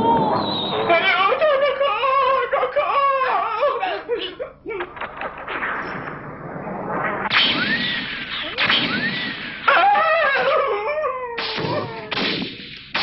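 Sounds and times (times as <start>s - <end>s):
cartoon whistles: 0.0s - 0.9s, 7.5s - 9.8s
shotgun blasts: 7.2s - 9.7s, 11.4s - 13.0s.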